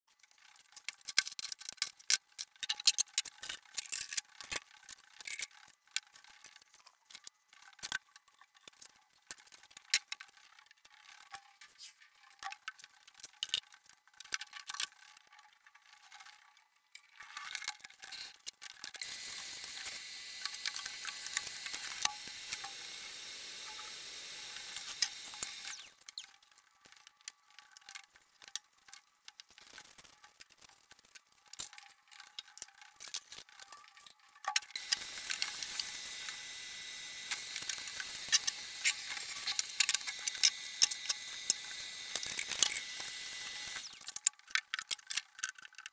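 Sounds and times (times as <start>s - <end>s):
clicks and knocks of handling: 0.4s - 15.4s, 43.9s - 45.9s
vacuum cleaner running: 19.0s - 25.8s, 34.8s - 43.9s.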